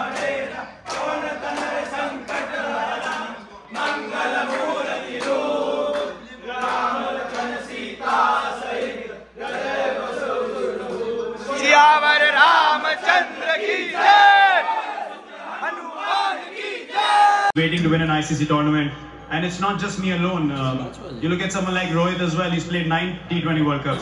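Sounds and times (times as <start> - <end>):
men chanting in unison: 0.0 - 17.5
men shouting and cheering: 0.0 - 17.6.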